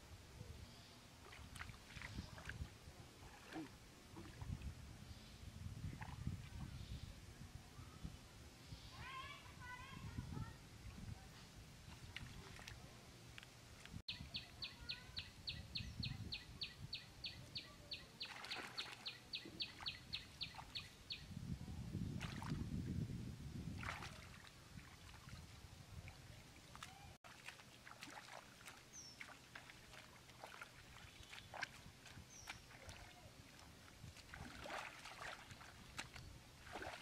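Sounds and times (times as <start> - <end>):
hands splashing in muddy water: 1.2 - 4.6, 18.2 - 19.1, 22.2 - 22.6, 23.8 - 25.4, 26.7 - 37.0.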